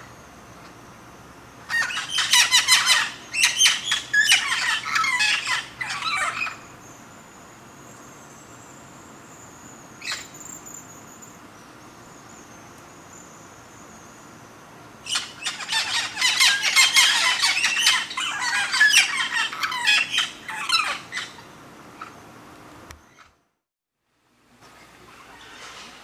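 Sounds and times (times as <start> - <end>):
parrot calling: 1.6 - 6.7, 10.0 - 10.4, 15.0 - 22.2.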